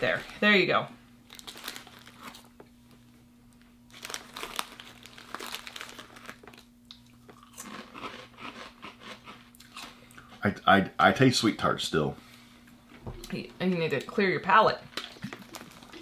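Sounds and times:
foil snack bag crinkling: 1.2 - 2.6, 3.9 - 9.4, 15.0 - 16.0
crunchy snacks being chewed: 1.3 - 2.6, 3.9 - 10.4, 15.0 - 16.0.

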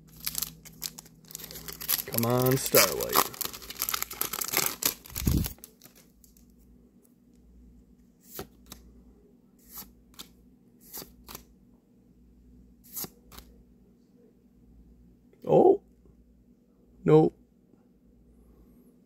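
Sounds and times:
cards crinkling: 0.0 - 6.5.

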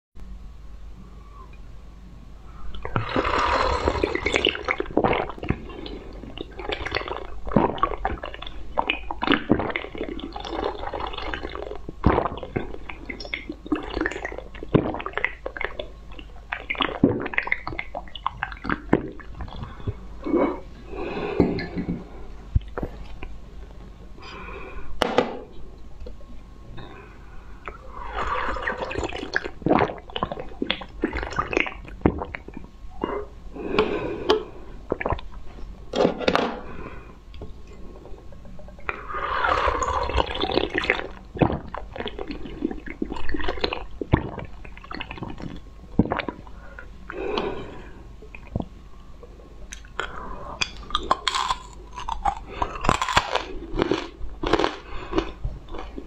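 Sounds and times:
sucking from a glass tube: 2.7 - 7.9, 26.8 - 30.0, 36.6 - 43.4
slurping and swallowing a drink: 2.7 - 20.7, 38.8 - 46.5.

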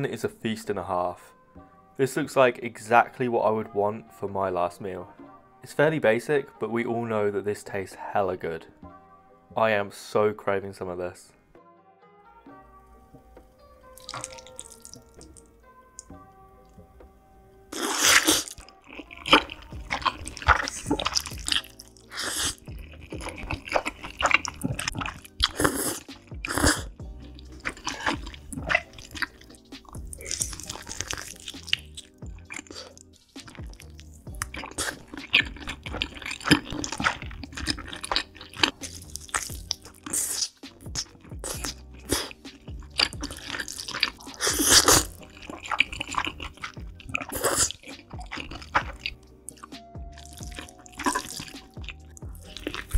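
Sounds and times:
background music: 0.0 - 52.9
noodles slurped and chewed: 14.0 - 15.4, 17.7 - 52.9
wet mouth clicks and smacks: 14.0 - 15.4, 17.8 - 52.9.

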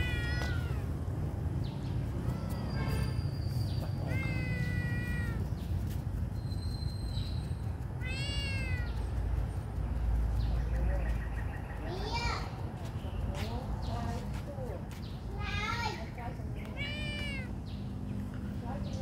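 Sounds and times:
kitten meowing: 0.0 - 1.0, 4.0 - 5.6, 7.9 - 9.1, 16.6 - 17.6.

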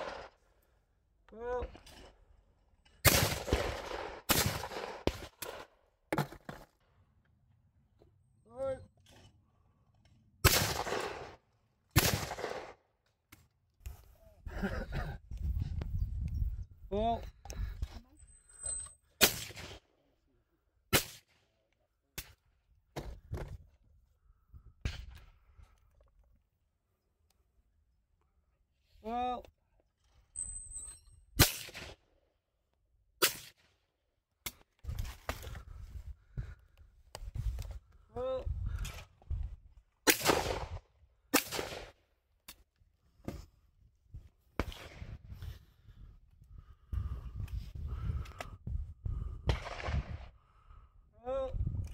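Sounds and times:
shotgun shots: 0.0 - 0.3, 3.0 - 5.6, 10.4 - 11.4, 12.0 - 12.8, 19.2 - 19.8, 40.1 - 42.0, 49.5 - 50.3.

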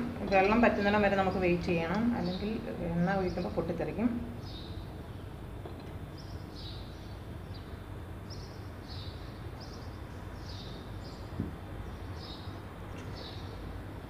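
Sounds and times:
steady low hum: 0.0 - 14.0
small bird chirping: 6.0 - 13.6.

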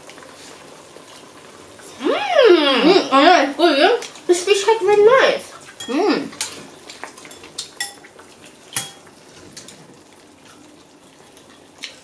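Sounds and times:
chopsticks clinking on bowl: 7.2 - 8.1.

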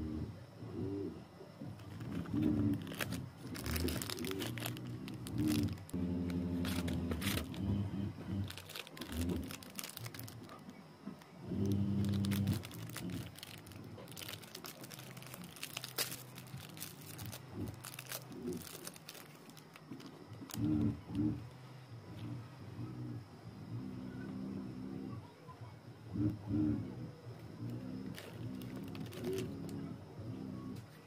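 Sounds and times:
low steady hum: 0.0 - 31.0
plastic wrapper crinkling: 1.8 - 7.6, 8.4 - 21.2, 27.6 - 29.8.

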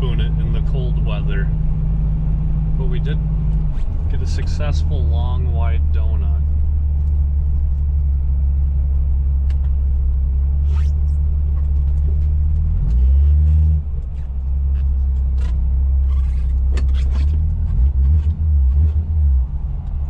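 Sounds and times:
car engine running: 0.0 - 20.0.

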